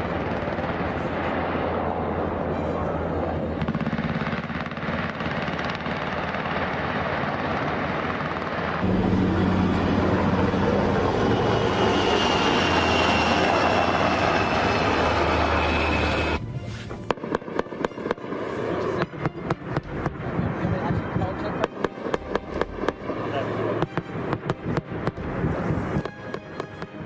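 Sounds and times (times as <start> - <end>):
aircraft engine and rotor drone: 0.0 - 27.0
thin high whine: 8.8 - 17.0.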